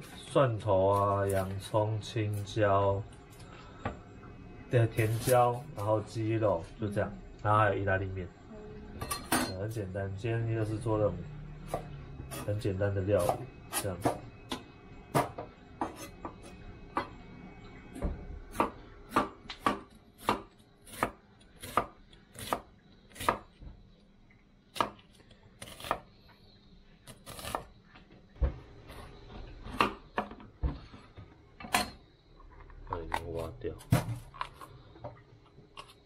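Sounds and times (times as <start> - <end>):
knife chopping on wooden board: 13.2 - 16.4, 18.5 - 23.6.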